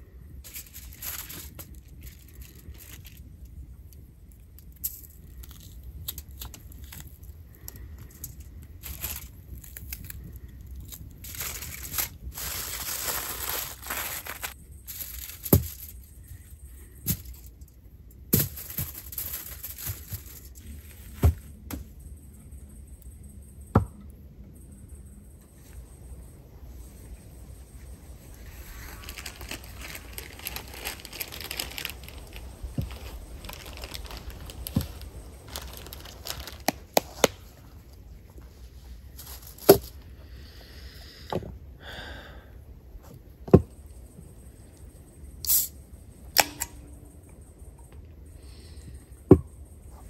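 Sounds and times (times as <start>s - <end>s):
aluminium foil tearing and crinkling: 0.5s - 3.3s, 4.7s - 16.1s, 18.4s - 20.8s, 28.6s - 37.4s.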